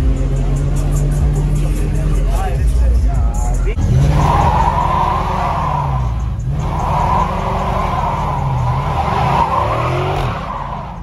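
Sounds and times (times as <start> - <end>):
car engine revving: 0.0 - 11.0
tyres screeching: 3.7 - 11.0.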